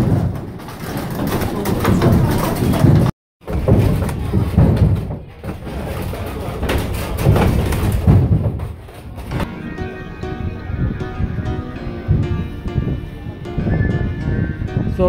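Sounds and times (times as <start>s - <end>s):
wooden cogwheels meshing: 0.0s - 9.5s
heavy thumps: 0.0s - 15.0s
background music: 9.4s - 15.0s.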